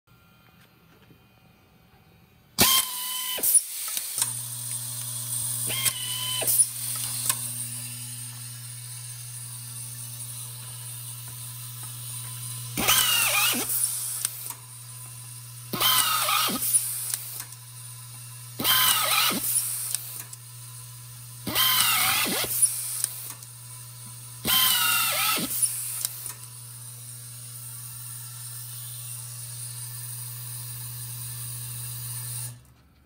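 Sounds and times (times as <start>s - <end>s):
pneumatic screwdriver whining: 2.6s - 9.4s, 11.7s - 14.7s, 15.7s - 17.6s, 18.6s - 20.4s, 21.4s - 23.6s, 24.4s - 26.6s.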